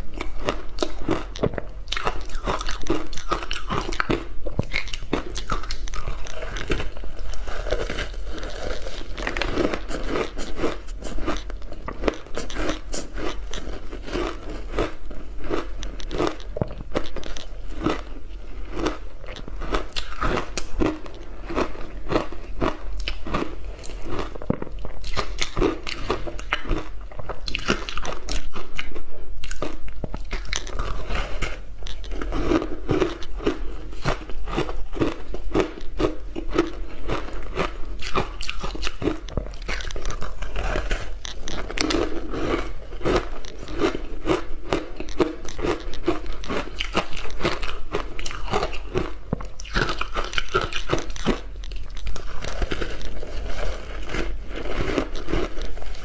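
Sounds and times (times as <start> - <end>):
ice crunching between teeth: 0.0 - 56.0.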